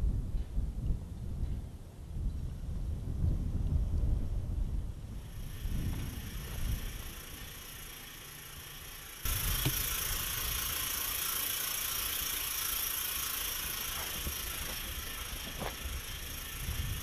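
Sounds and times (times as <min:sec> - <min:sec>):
wind buffeting microphone: 0:00.0 - 0:07.6, 0:13.0 - 0:17.0.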